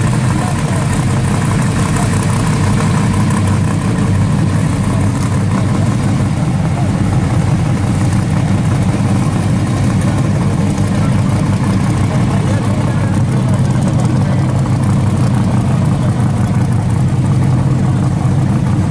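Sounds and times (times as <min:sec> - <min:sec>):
car engine idling: 0:00.0 - 0:18.9.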